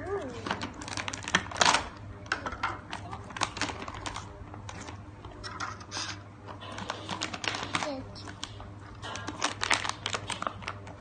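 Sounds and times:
foil pouch crinkling: 0.4s - 1.9s, 3.0s - 5.0s, 6.6s - 11.0s.

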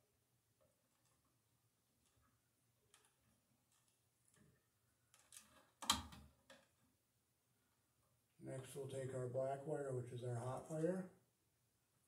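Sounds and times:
wires rustling and clicking: 0.6s - 6.8s.

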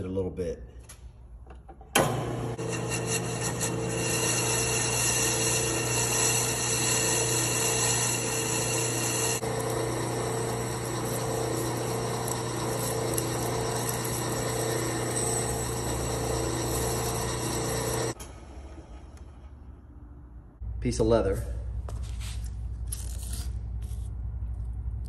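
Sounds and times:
metal lathe humming: 2.0s - 18.2s.

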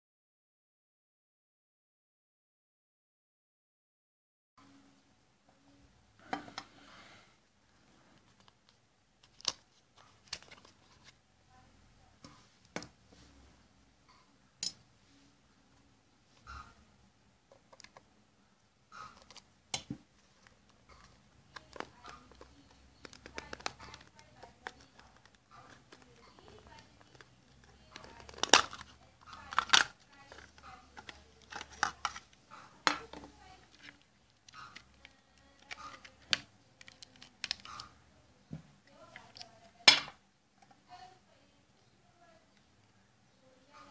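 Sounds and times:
plastic clicks and snaps: 19.2s - 27.2s, 27.9s - 37.9s.

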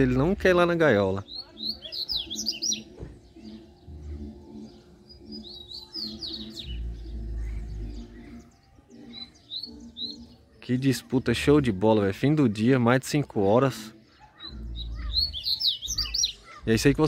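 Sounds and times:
birds twittering: 0.0s - 17.0s.

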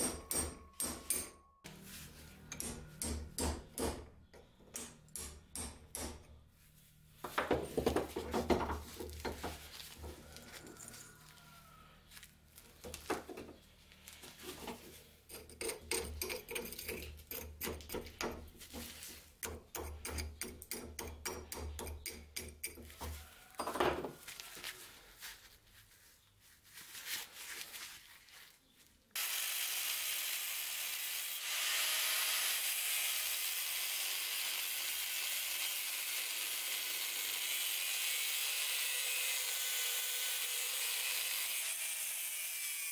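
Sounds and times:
angle grinder grinding steel: 29.2s - 42.9s.

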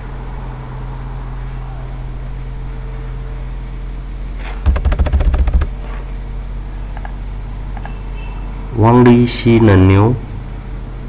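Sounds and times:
computer keyboard clicks: 4.7s - 5.7s, 7.0s - 7.2s, 7.8s - 8.0s.

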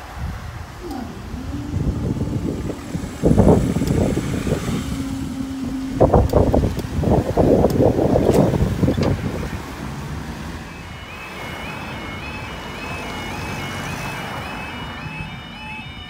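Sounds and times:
loud rumble: 0.0s - 10.7s
level crossing warning alarm: 0.0s - 16.0s.

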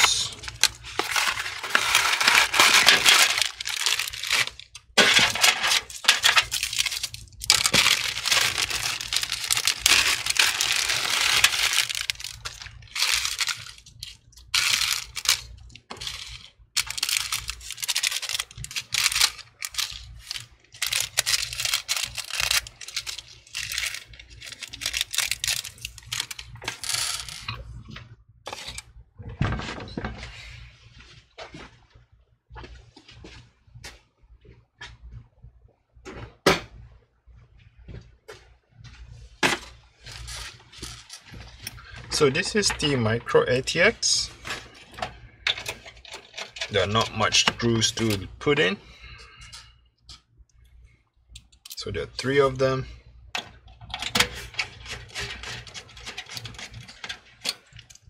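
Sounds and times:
cardboard rustling: 0.0s - 26.6s
metal screws rattling in a box: 0.0s - 27.5s.

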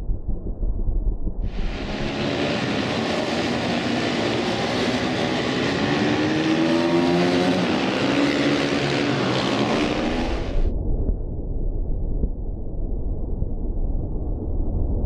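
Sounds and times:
motorcycle engines revving: 1.5s - 10.7s.

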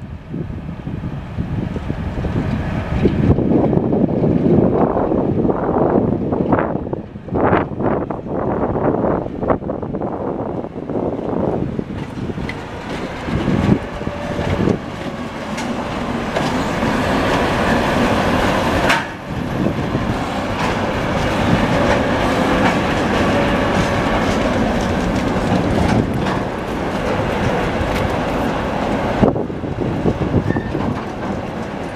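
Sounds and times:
diesel locomotive engine: 0.0s - 31.9s
train wheels clacking: 11.8s - 31.9s.

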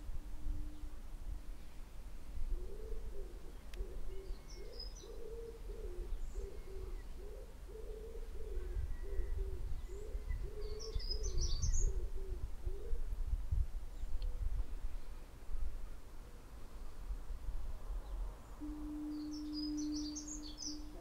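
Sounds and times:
pigeon cooing: 2.5s - 13.0s
high bird chirps: 18.6s - 21.0s.

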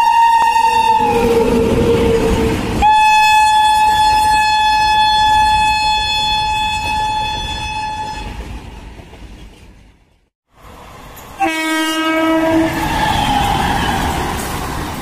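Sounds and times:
train horn blast: 0.0s - 8.4s, 11.4s - 14.1s
train rumbling: 0.0s - 15.0s.

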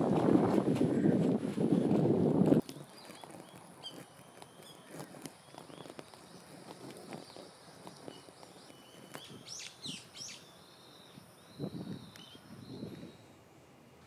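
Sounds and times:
birds chirping: 2.6s - 13.4s.

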